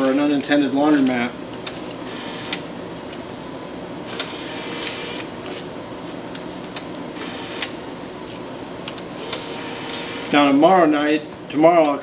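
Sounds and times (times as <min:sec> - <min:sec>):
steady background hum: 0:00.0 - 0:12.0
bill acceptor feeding notes: 0:04.1 - 0:05.3, 0:07.2 - 0:07.7, 0:09.2 - 0:10.6.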